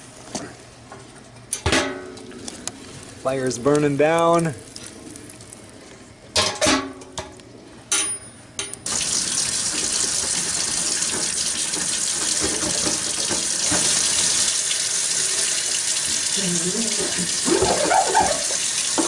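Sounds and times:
faucet water splashing on metal: 8.8s - 19.0s.

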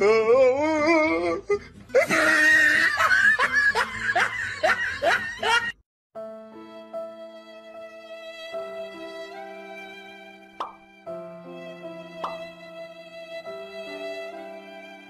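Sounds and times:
wavering vocal cry: 0.0s - 3.2s
person laughing hard: 2.0s - 5.8s
soft music with held notes: 6.2s - 15.0s.

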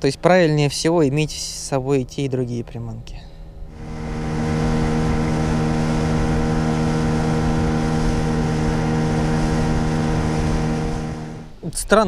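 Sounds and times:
wind rushing: 3.6s - 11.7s
outboard motor running: 3.7s - 11.6s
water rushing: 3.7s - 11.6s.

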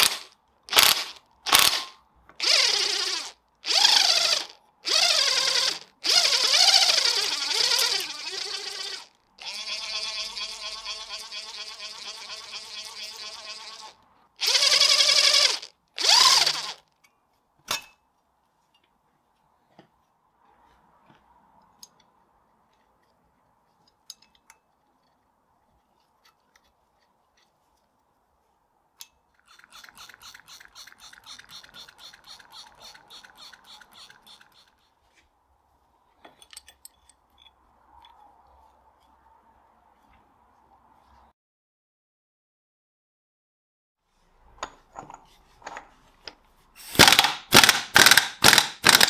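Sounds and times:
power driver whirring: 0.0s - 16.8s, 46.9s - 49.0s.

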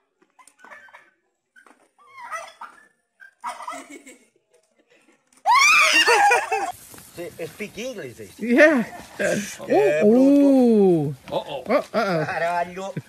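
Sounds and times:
turkey gobbling: 3.4s - 3.9s.

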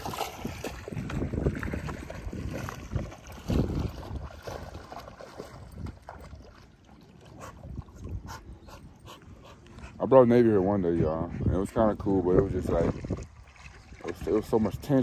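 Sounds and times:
wind buffeting microphone: 0.0s - 6.6s, 7.2s - 15.0s
dog splashing in water: 0.0s - 7.9s.

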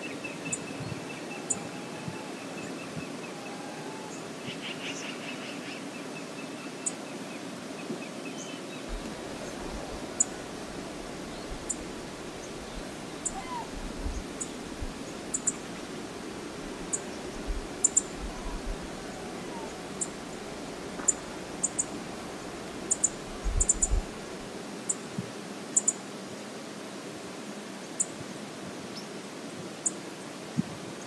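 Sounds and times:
bird calling: 0.0s - 5.7s, 8.9s - 15.8s, 16.9s - 24.0s
flowing river water: 5.5s - 31.0s.

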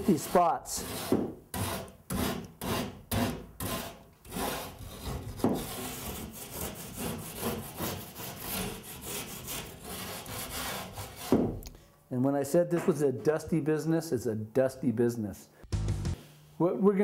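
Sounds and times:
plane rasping drywall edge: 0.0s - 11.6s.

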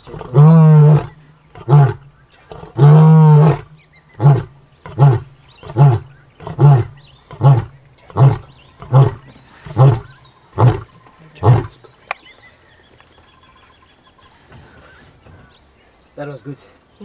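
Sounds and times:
lion roaring: 0.0s - 11.8s.

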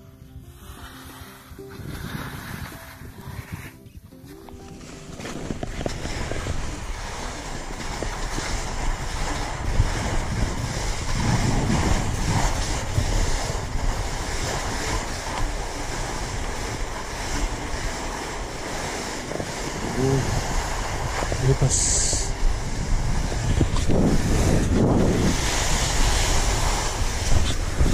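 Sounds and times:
wind rumble on microphone: 0.0s - 27.9s
skis hissing on snow: 0.4s - 27.9s.

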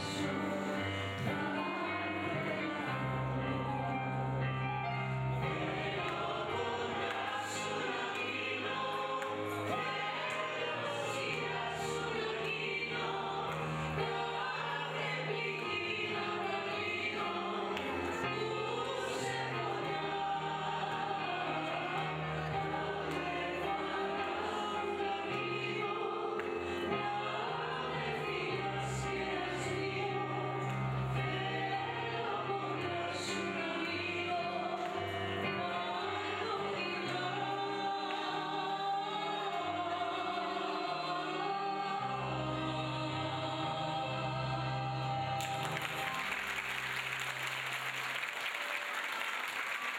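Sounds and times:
piano accompaniment: 0.0s - 48.7s
audience applause: 45.4s - 49.9s.

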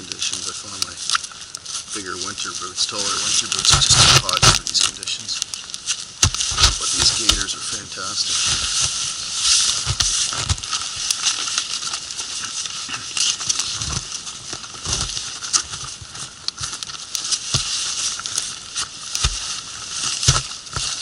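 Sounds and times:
campfire crackling: 0.0s - 21.0s
fabric rustling and scraping: 6.2s - 21.0s.

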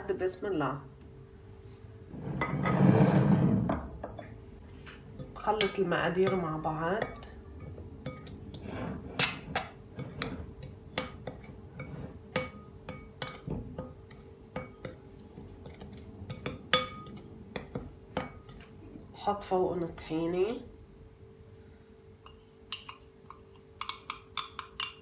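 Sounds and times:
soft scraping: 1.6s - 3.7s
spoon clinking on glass bowl: 5.2s - 8.4s, 22.3s - 25.0s.

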